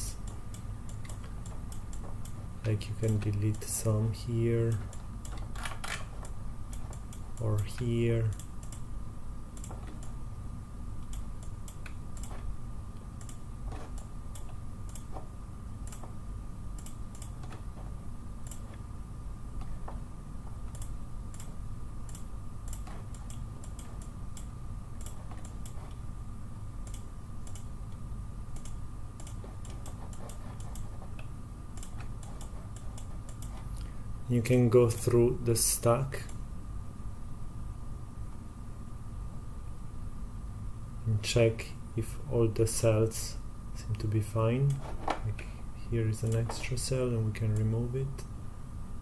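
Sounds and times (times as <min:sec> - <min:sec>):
low electrical hum: 0:00.0 - 0:49.0
computer mouse clicking: 0:03.0 - 0:03.6, 0:04.7 - 0:08.8, 0:09.6 - 0:10.2, 0:11.0 - 0:12.5, 0:13.1 - 0:16.2, 0:16.8 - 0:17.7, 0:18.4 - 0:18.8, 0:20.7 - 0:21.5, 0:22.1 - 0:26.0, 0:26.8 - 0:27.7, 0:28.6 - 0:33.9.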